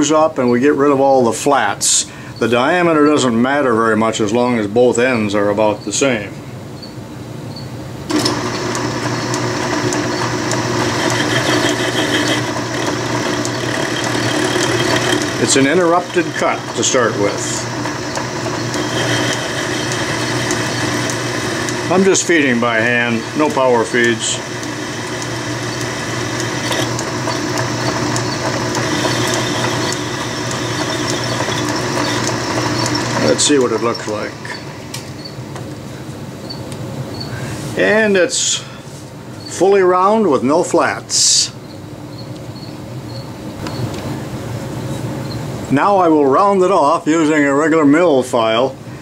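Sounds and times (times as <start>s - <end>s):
metal lathe running: 8.1s - 35.6s.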